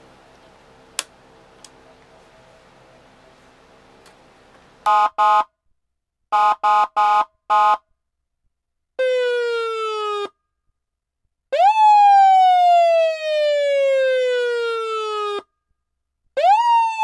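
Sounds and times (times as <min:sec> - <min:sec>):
faint hum: 0:00.0 - 0:04.9.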